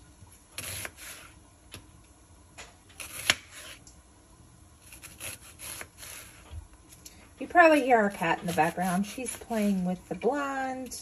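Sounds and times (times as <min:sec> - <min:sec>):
knife cutting on cutting board: 0:00.6 - 0:01.3, 0:03.0 - 0:03.8, 0:04.8 - 0:06.5, 0:08.1 - 0:09.8.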